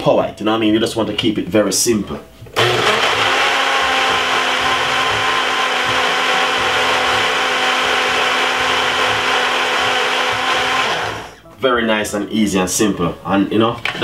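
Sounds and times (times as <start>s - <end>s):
blender motor whining: 2.6s - 11.4s.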